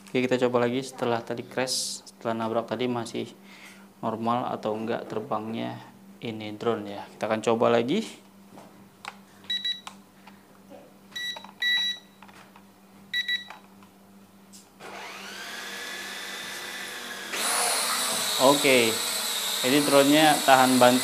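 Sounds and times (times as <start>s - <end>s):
drone propeller motors whirring: 14.8s - 21.0s.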